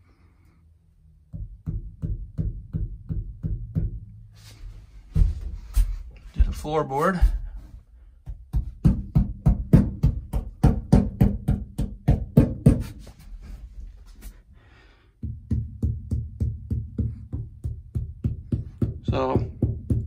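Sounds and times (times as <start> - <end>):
dull thuds on damped floor: 5.1 - 6.0.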